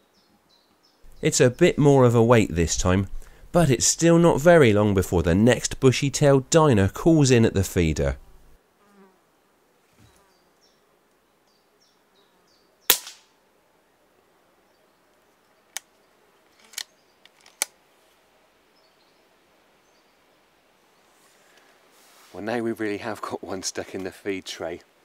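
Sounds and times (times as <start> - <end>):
air rifle shot: 12.9 - 13.4.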